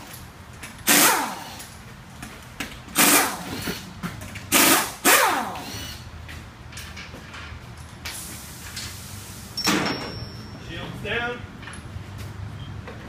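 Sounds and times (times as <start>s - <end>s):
air impact wrench bursts: 0.8s - 1.7s, 2.9s - 3.9s, 4.5s - 6.1s, 8.1s - 10.0s.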